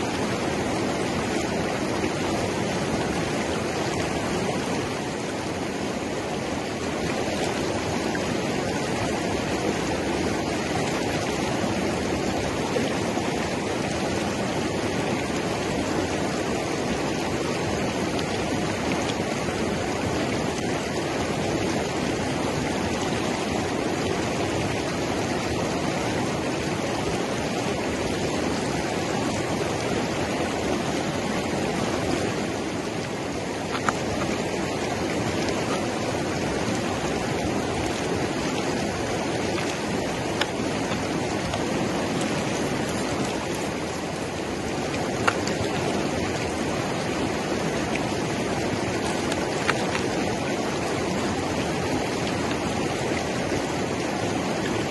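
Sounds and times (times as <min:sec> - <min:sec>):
river rapids rushing: 0:00.0 - 0:54.9.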